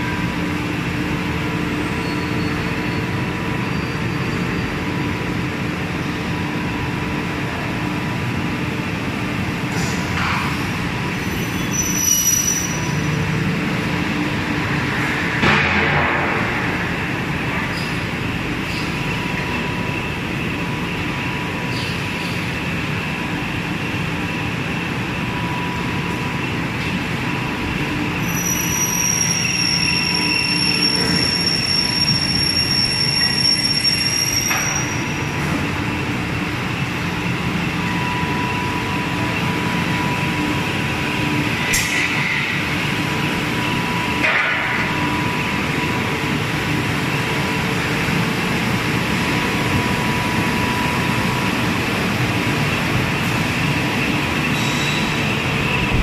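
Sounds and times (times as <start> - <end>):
factory machinery and conveyors: 0.0 - 56.0
high-pitched squeal: 11.3 - 13.0.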